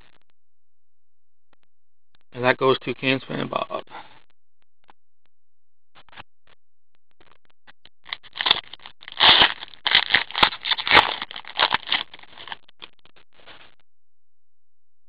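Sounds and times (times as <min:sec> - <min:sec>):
foil pack crinkling and tearing: 0:08.1 - 0:12.7.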